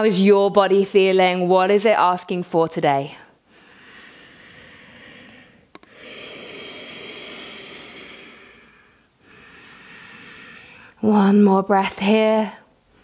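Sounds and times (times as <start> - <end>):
woman breathing deeply: 3.4 - 11.0.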